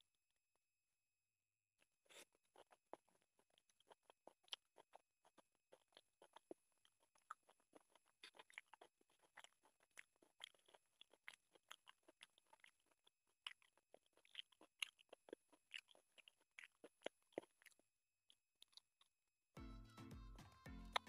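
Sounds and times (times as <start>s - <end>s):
chewing and lip smacks: 2.0s - 19.1s
fingers squishing wet rice: 2.2s - 19.0s.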